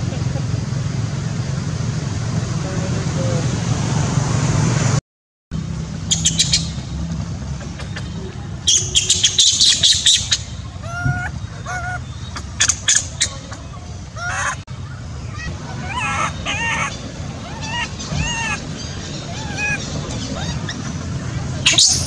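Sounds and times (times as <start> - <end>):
high bird-like chirps: 6.1 - 7.0, 7.6 - 22.0.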